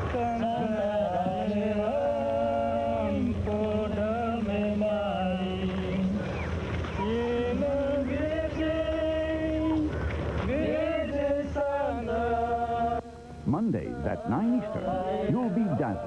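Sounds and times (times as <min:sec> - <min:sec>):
person singing chant-like: 0:00.0 - 0:09.9, 0:10.5 - 0:13.1, 0:13.7 - 0:16.0
low steady hum: 0:00.0 - 0:16.0.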